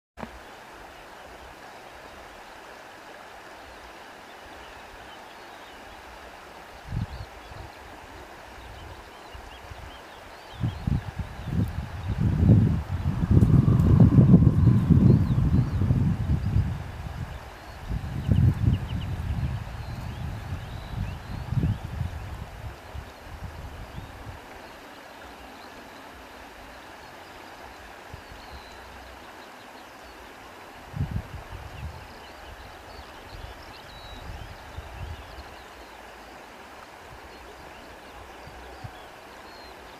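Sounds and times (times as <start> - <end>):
flowing water rushing: 0.2 - 39.9
wind buffeting microphone: 8.6 - 24.5, 30.8 - 32.7
wind rushing: 10.7 - 17.3.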